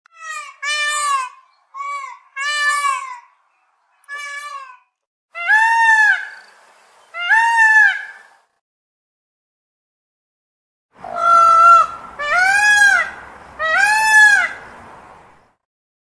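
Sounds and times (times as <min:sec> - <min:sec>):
peacock wailing calls: 0:00.1 - 0:03.4, 0:04.0 - 0:06.5, 0:07.1 - 0:08.4, 0:11.0 - 0:15.4.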